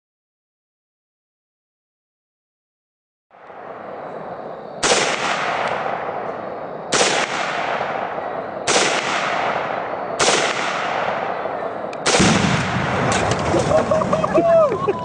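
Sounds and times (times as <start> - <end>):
rifle shots echoing: 3.4 - 13.7
steady rushing noise: 3.4 - 15.0.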